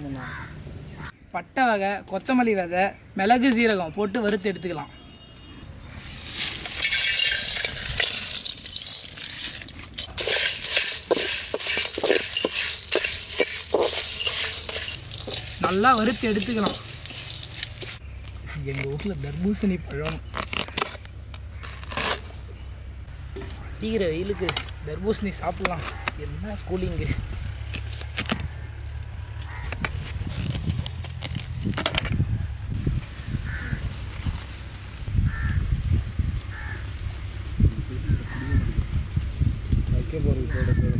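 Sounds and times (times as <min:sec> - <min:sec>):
crows cawing: 0:00.1 - 0:01.2, 0:29.4 - 0:29.8, 0:33.4 - 0:33.9, 0:35.2 - 0:35.6, 0:36.5 - 0:36.9
seeds rattling: 0:05.9 - 0:19.6
metal spatula scraping pan: 0:06.4 - 0:18.0
knife cutting watermelon rind: 0:15.6 - 0:21.0, 0:21.6 - 0:22.3, 0:25.5 - 0:26.2.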